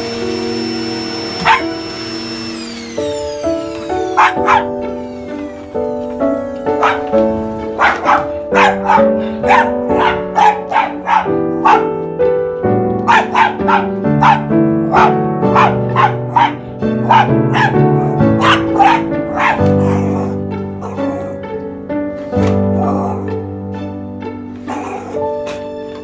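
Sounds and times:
gentle instrumental music: 0.0 - 26.0
small dog yapping: 1.4 - 1.7, 4.2 - 4.8, 6.8 - 7.1, 7.8 - 11.9, 13.1 - 17.8, 18.4 - 20.3.

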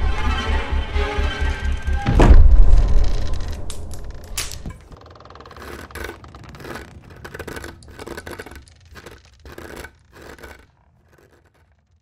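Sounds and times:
dog rasping scratching noises: 5.4 - 12.0.

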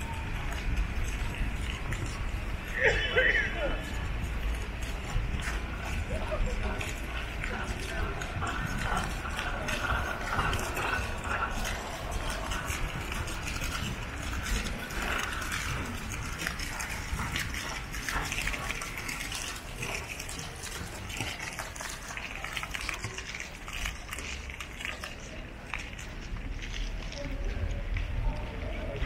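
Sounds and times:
wind rumble on microphone: 0.0 - 3.1, 3.7 - 20.4
footsteps on wet paving: 0.0 - 29.0
fountain water splashing: 0.0 - 29.0
small clicks on wet paving: 0.0 - 29.0.

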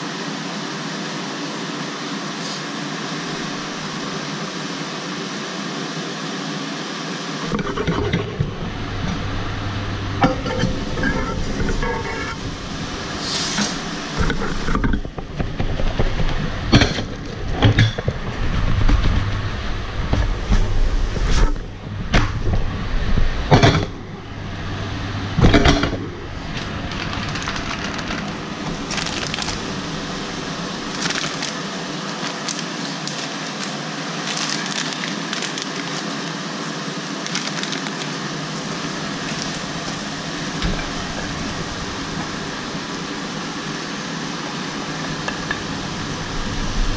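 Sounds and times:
low hum: 7.4 - 33.7, 38.4 - 46.9
pan and turner clanking: 7.5 - 19.4.

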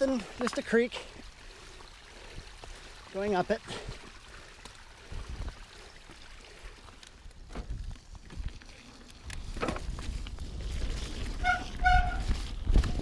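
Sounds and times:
bike tyres rolling over rock: 0.0 - 13.0
bike rattling and clicking: 3.7 - 13.0
wind rumble on microphone: 7.4 - 13.0.

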